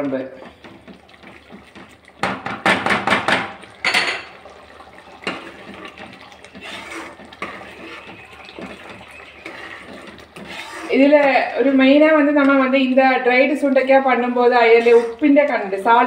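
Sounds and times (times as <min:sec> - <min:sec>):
thick gravy sloshing: 0:00.0 - 0:02.7, 0:03.4 - 0:16.0
utensil scraping and knocking pan: 0:05.2 - 0:12.7.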